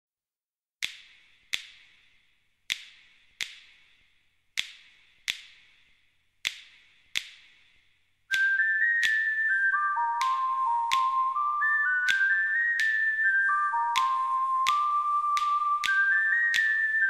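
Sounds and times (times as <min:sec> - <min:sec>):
echoing finger snaps: 0:00.8 - 0:17.0
high whistle-like melody: 0:08.3 - 0:17.0.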